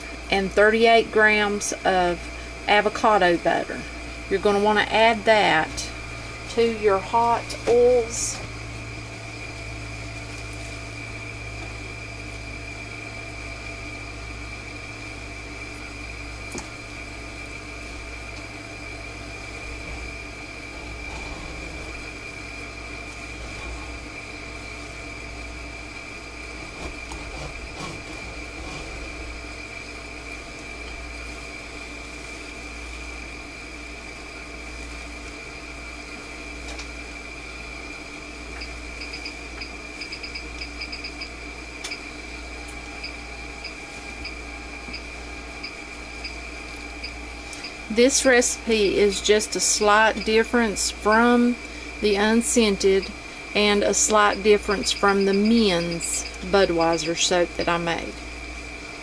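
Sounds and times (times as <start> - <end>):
background hum with high whine: 0.0 - 59.0
spatula scraping glass bowl: 23.2 - 24.2, 26.6 - 29.4.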